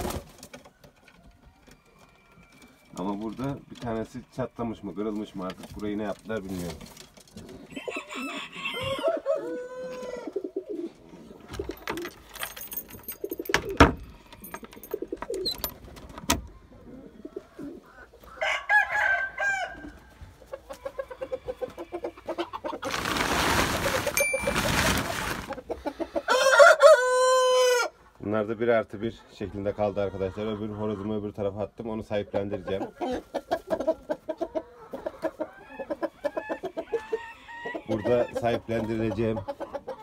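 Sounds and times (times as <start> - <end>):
chickens calling: 0.0 - 40.0
pigeons cooing: 7.4 - 18.3
rooster crowing: 7.7 - 10.3, 18.4 - 19.9, 26.3 - 27.9
rustling noise: 22.8 - 25.7.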